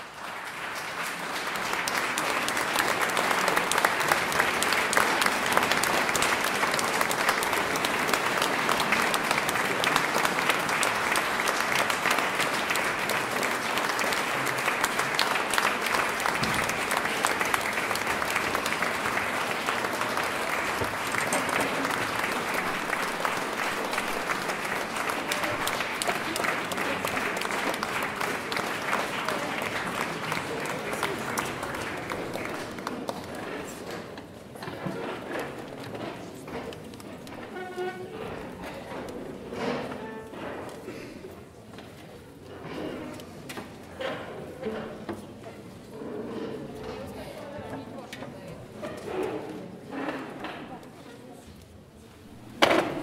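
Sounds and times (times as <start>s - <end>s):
audience applauding: 0.0s - 34.4s.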